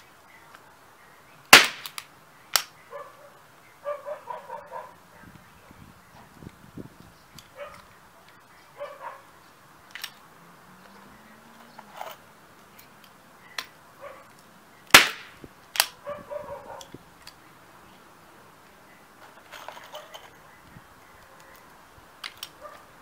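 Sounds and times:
nail gun bang: 0:01.5 - 0:02.0, 0:14.9 - 0:15.9
small crack: 0:01.5 - 0:02.7, 0:09.9 - 0:10.2, 0:11.6 - 0:16.0, 0:21.2 - 0:22.6
dog barking: 0:02.9 - 0:05.4, 0:07.6 - 0:07.9, 0:08.8 - 0:09.3, 0:14.0 - 0:14.3, 0:15.9 - 0:16.9, 0:22.6 - 0:23.0.

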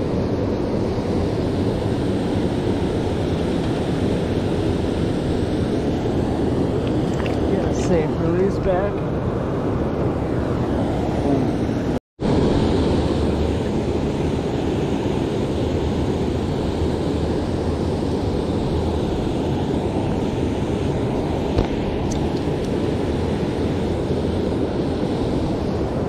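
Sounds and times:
water rushing over a weir: 0:06.7 - 0:08.1.

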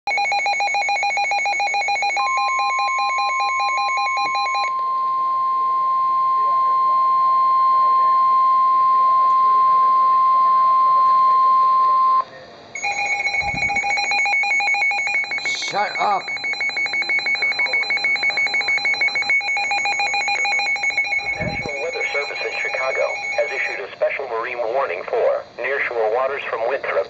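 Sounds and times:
steady single-pitch warning tone: 0:00.1 - 0:24.0
fast warbling beep: 0:12.8 - 0:23.9.

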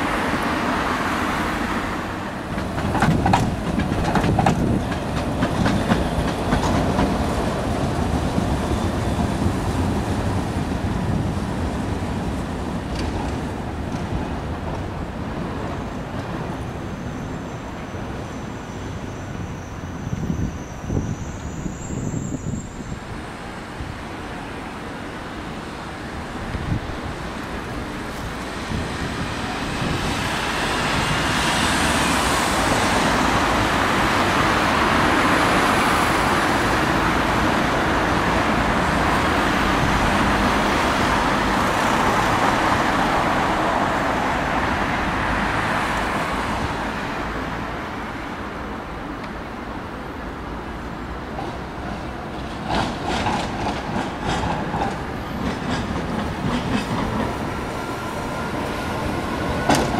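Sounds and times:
street traffic passing: 0:00.0 - 0:59.9
tram wheels clicking over rails: 0:00.1 - 0:16.9, 0:50.7 - 0:59.9
faint wheel squeal: 0:16.7 - 0:23.0.

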